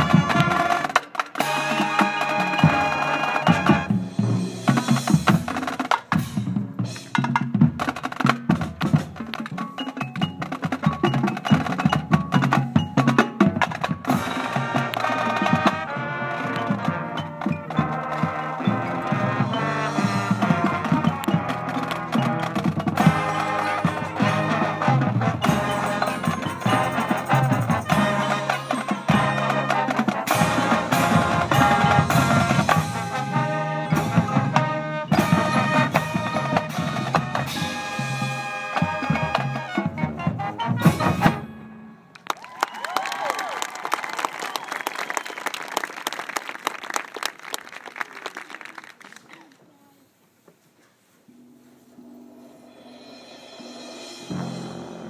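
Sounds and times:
marching band playing: 0.0s - 48.4s, 51.4s - 55.0s
sharp percussion hits: 18.7s - 39.5s, 52.0s - 55.0s.

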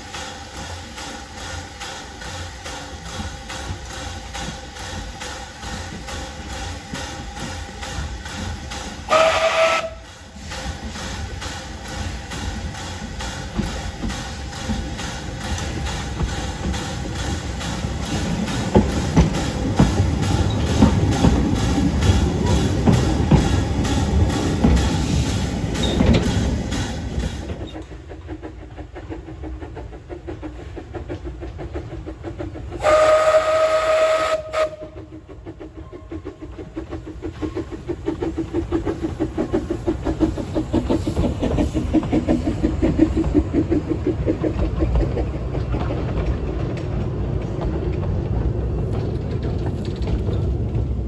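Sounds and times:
steam hissing: 0.0s - 45.7s
steam locomotive exhaust beat: 0.0s - 51.0s
steam whistle blast: 9.1s - 10.1s, 32.8s - 35.0s.

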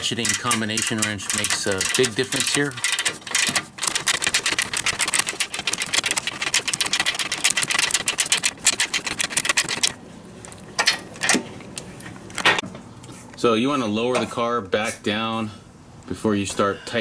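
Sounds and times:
ratcheting wrench clicking: 0.0s - 10.0s.

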